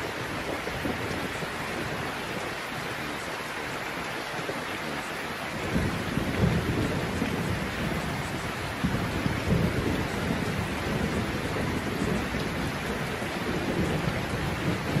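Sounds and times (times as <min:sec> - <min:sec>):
steady rain hissing: 0:00.0 - 0:15.0
low rumble of thunder: 0:05.5 - 0:15.0.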